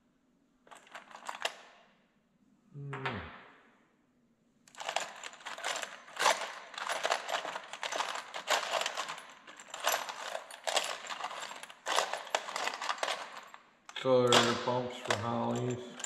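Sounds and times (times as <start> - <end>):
small metal parts clinking: 0.7 - 1.8, 4.7 - 16.0.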